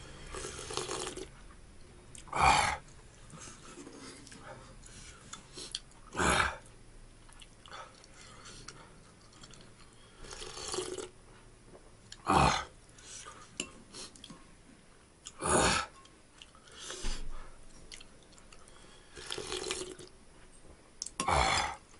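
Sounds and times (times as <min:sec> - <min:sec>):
person slurping broth: 0:00.1 - 0:01.3, 0:10.2 - 0:11.1, 0:19.1 - 0:20.1.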